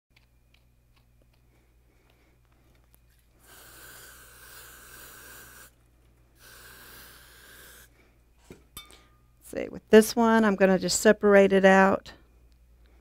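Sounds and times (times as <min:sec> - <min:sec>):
aerosol spray can hissing: 0:03.4 - 0:05.8, 0:06.4 - 0:07.9.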